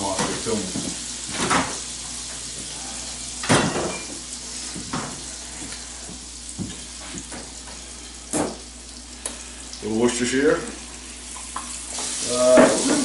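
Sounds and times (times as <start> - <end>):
meat sizzling in a frying pan: 0.0 - 13.0.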